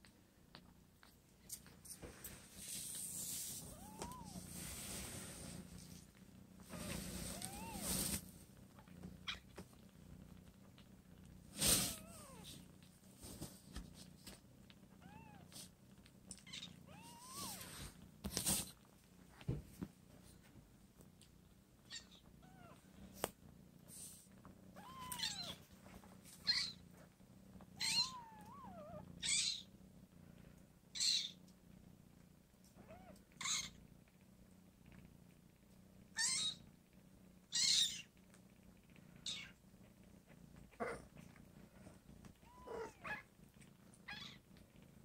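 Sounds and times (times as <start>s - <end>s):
cat purring: 0.0s - 45.0s.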